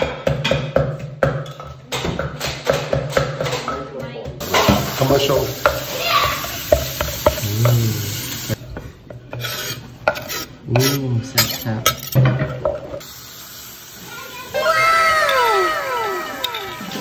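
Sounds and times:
pestle stirring sauce in a mortar: 5.6 - 12.0.

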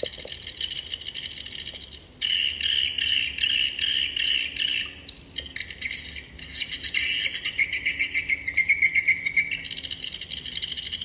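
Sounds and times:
lower pulsing bird chirping: 0.0 - 11.0
high fast twittering trill: 2.2 - 11.0.

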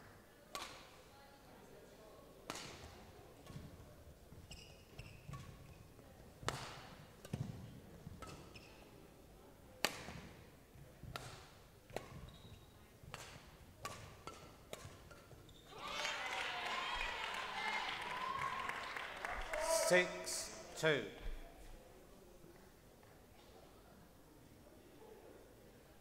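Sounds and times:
racket striking shuttlecock: 0.5 - 0.8, 2.5 - 3.6, 5.2 - 5.7, 6.4 - 8.6, 9.8 - 10.3, 11.1 - 12.3, 13.0 - 15.4
shoes squeaking on court: 4.3 - 6.0, 7.3 - 9.0, 11.2 - 15.7.

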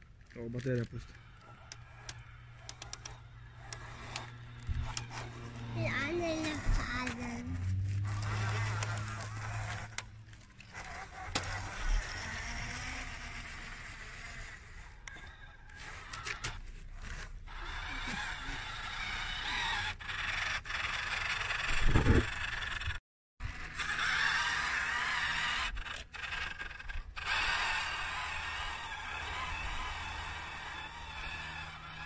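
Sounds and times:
tracks scraping over dirt: 0.0 - 22.7
small electric motor running: 0.2 - 32.0.

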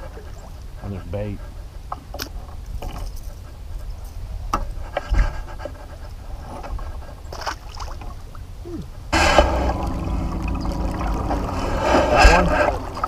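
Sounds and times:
low thump: 9.2 - 12.8.

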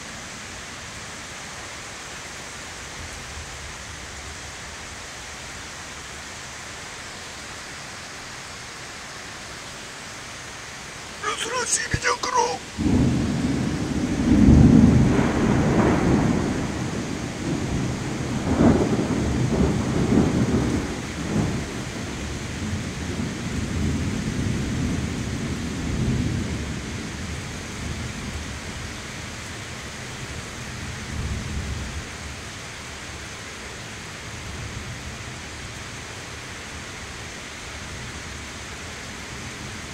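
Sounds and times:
heavy rain: 0.0 - 39.9
thunder rumbling: 12.6 - 21.8.

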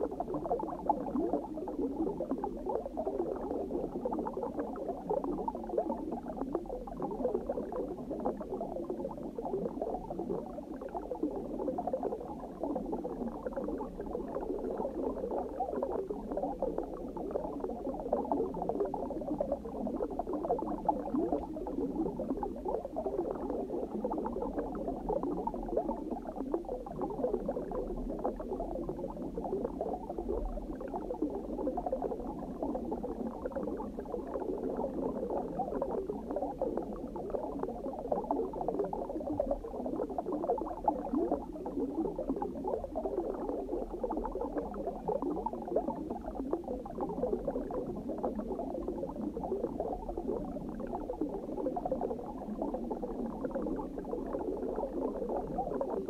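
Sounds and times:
underwater bubbling and gurgling: 0.0 - 56.0.

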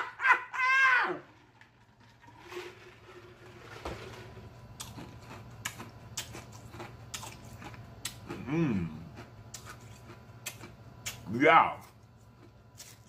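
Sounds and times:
ice being chewed: 4.8 - 13.0.

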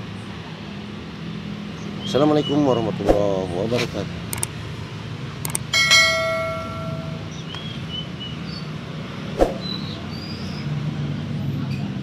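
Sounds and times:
bell-like chime: 5.7 - 7.4
small birds chirping: 7.3 - 8.8, 9.6 - 10.8.

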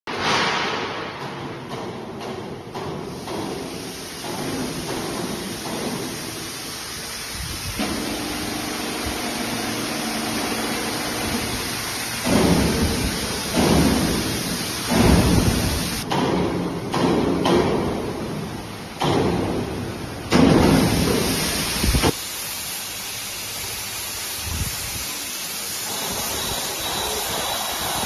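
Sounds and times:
electric hoist humming: 6.3 - 16.0.

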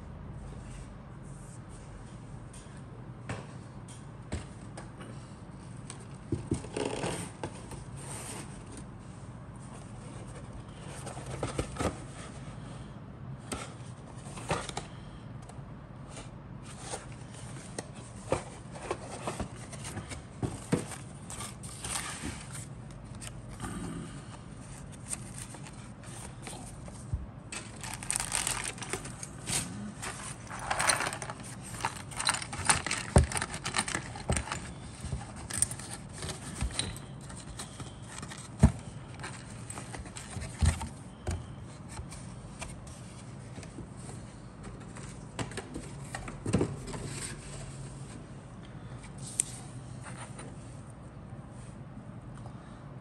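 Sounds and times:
cardboard box being handled: 24.8 - 41.1.

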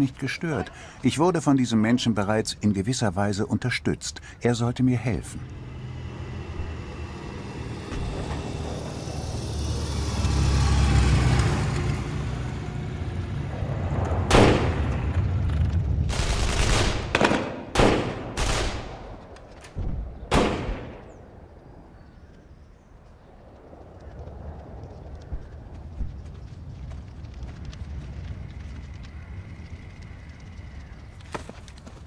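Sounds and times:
low rumble: 4.2 - 31.3
echoing gunshots: 14.2 - 15.0, 16.1 - 19.2, 20.3 - 21.2.

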